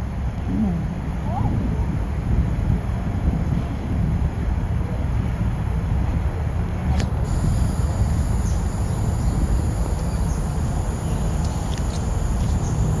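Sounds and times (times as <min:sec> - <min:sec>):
wind on microphone: 0:00.0 - 0:13.0
distant helicopter rotors rumbling: 0:07.1 - 0:13.0
faint high chirps: 0:07.3 - 0:13.0.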